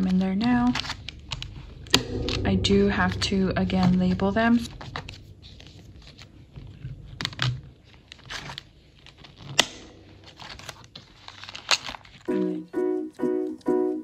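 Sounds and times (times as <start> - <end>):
music: 12.3 - 14.0.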